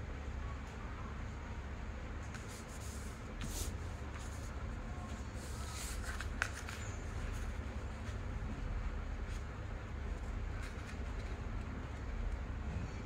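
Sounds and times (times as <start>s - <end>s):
low steady hum: 0.0s - 13.0s
paper rustling and sliding: 2.2s - 8.2s
paper swishes: 2.3s - 4.6s, 5.3s - 8.2s.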